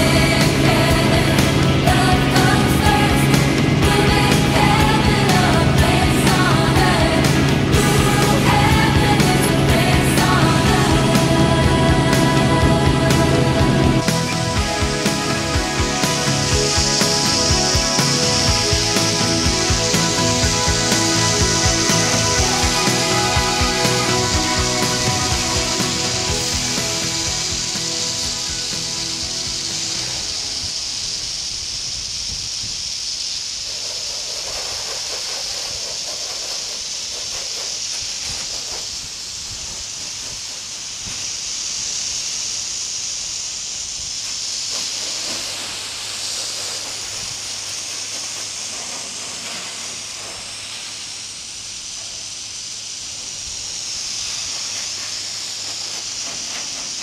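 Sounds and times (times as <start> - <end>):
music: 0.0 - 31.7
hose water spraying and splashing: 0.0 - 57.0.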